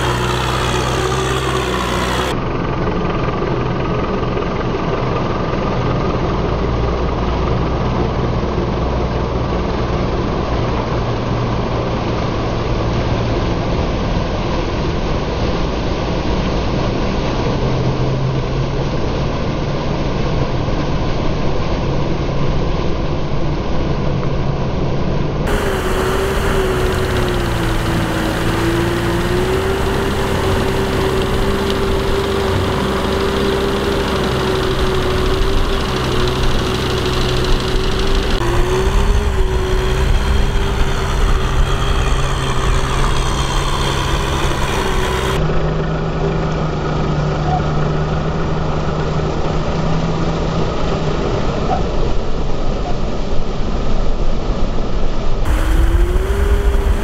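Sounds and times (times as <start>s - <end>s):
tiller churning through wet mud: 0.0s - 2.5s, 25.5s - 45.4s, 55.5s - 57.0s
tractor engine running under load: 0.0s - 14.0s, 25.5s - 49.8s, 55.5s - 57.0s
wavering engine whine: 0.0s - 15.8s, 25.5s - 51.4s, 55.4s - 57.0s.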